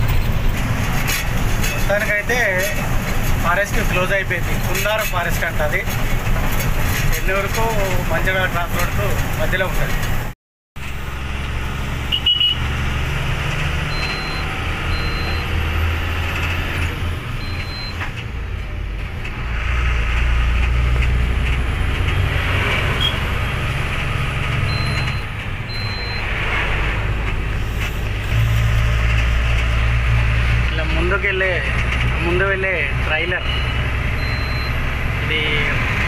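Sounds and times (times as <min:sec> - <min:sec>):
truck diesel engine droning: 0:00.0 - 0:10.2, 0:10.8 - 0:36.0
road noise: 0:00.0 - 0:36.0
short high beeps: 0:13.9 - 0:15.5, 0:24.7 - 0:26.2, 0:33.4 - 0:34.8.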